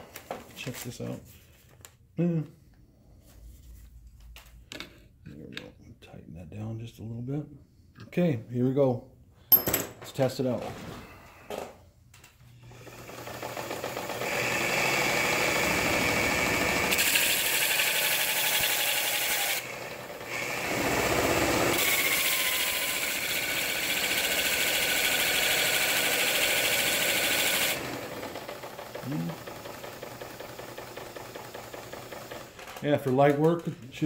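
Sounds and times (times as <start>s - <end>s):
small electric motor spinning: 12.8s - 28.1s.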